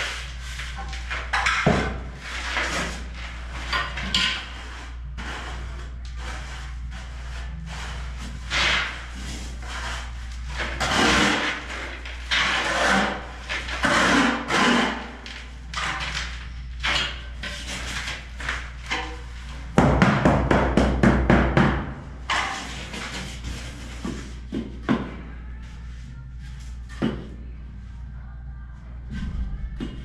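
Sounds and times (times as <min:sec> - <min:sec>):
steady low hum: 0:00.0 - 0:30.0
trowel scraping mortar: 0:02.2 - 0:15.2.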